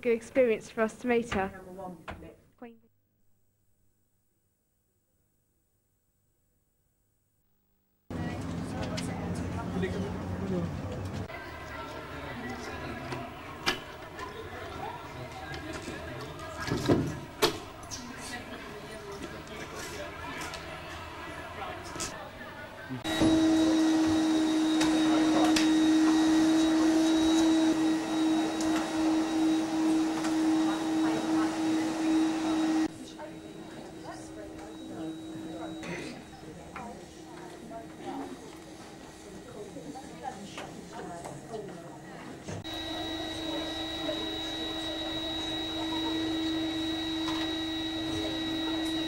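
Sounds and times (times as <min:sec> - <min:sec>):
outdoor crowd noise: 0:08.1 - 0:23.2
vacuum cleaner on carpet: 0:23.0 - 0:35.8, 0:42.6 - 0:49.0
steady whine: 0:23.0 - 0:39.6, 0:42.6 - 0:49.0.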